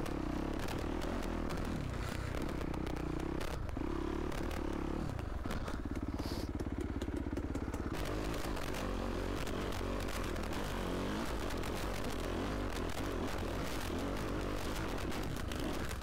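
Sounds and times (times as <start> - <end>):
dirt bike engine revving: 7.6 - 16.0.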